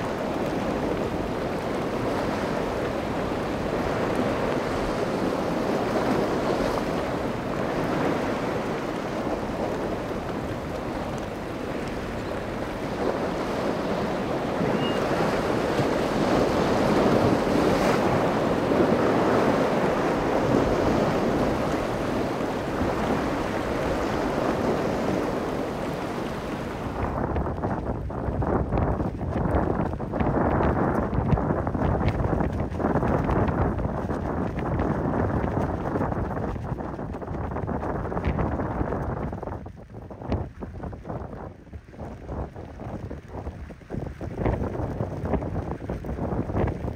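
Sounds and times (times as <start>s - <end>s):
breaking surf: 0.0s - 27.8s
wind on microphone: 0.0s - 46.9s.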